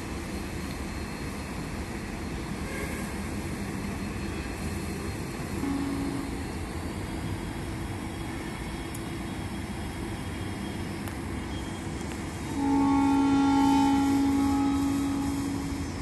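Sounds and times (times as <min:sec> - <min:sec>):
locomotive horn chord: 0:05.6 - 0:06.5, 0:12.4 - 0:16.0
short low tone: 0:12.6 - 0:16.0.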